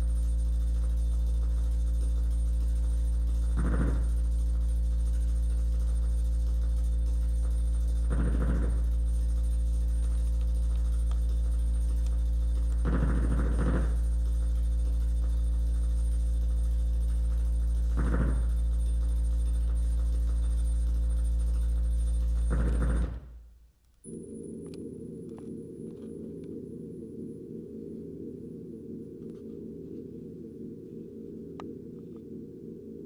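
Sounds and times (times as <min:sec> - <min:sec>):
deep droning tone: 0:24.0 - 0:33.0.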